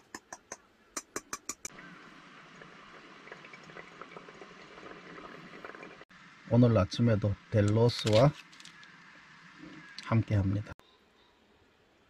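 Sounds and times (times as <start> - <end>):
faint crackles: 1.7 - 6.0
water trickling and dripping: 1.7 - 6.1.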